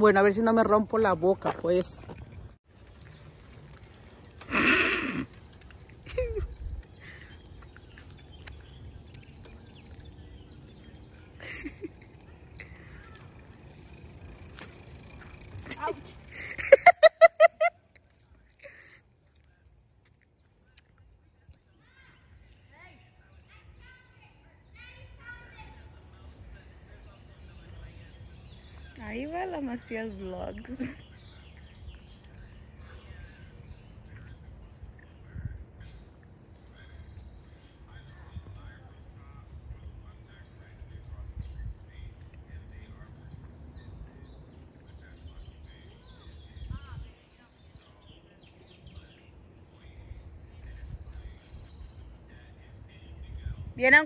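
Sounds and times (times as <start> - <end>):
wind rumble on microphone: 6.0 - 7.0, 34.1 - 36.0, 39.7 - 44.2, 45.1 - 48.0, 52.9 - 54.0
faint bird chirps: 17.6 - 54.0.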